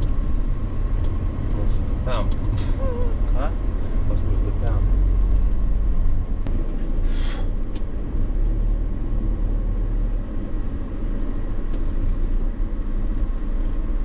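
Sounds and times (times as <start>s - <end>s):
vehicle road and engine rumble: 0.0s - 14.0s
short hiss: 7.0s - 7.5s.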